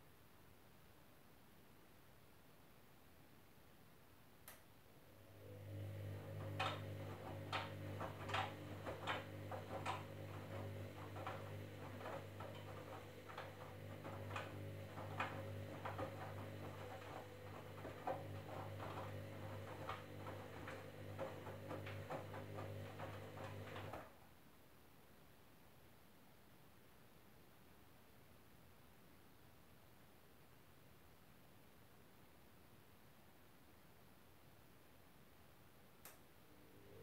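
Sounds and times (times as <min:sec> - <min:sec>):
washing machine drum motor humming: 0:05.1 - 0:24.2
clicks and knocks: 0:06.0 - 0:24.1.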